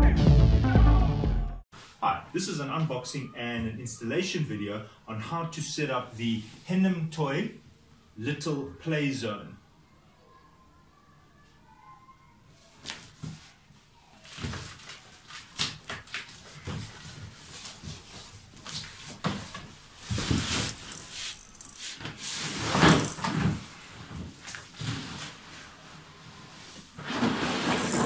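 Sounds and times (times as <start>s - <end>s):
packaging rustling: 14.2s - 23.4s.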